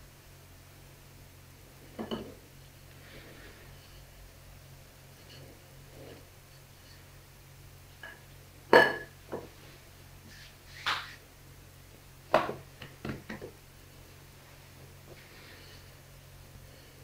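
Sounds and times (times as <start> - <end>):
dough knocking on worktop: 12.3 - 13.5.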